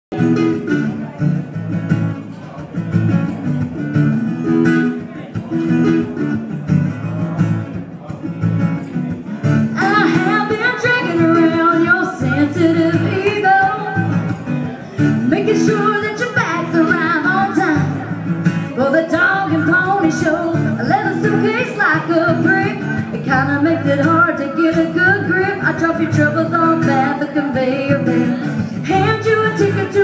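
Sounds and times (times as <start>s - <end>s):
acoustic guitar strumming chords: 0.1s - 30.0s
woman singing: 9.6s - 14.3s, 15.1s - 30.0s.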